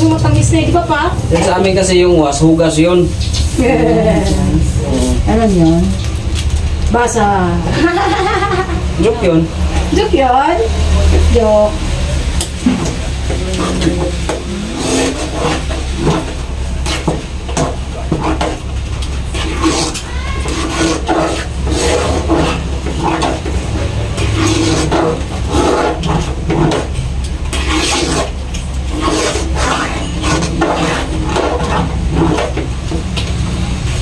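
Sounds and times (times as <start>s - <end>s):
ladle scraping metal pot: 12.8s - 33.1s.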